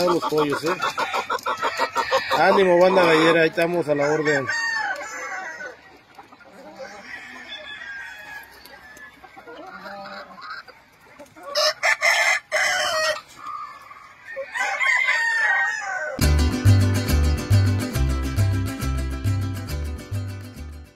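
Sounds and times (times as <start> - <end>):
roosters crowing: 0.0 - 6.0, 6.6 - 10.7, 11.4 - 16.3
hens clucking softly: 0.0 - 16.2.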